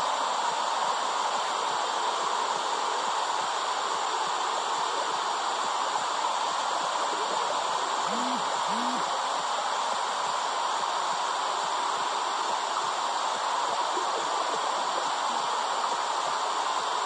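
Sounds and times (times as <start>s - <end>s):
faint short hums: 8.0s - 9.2s.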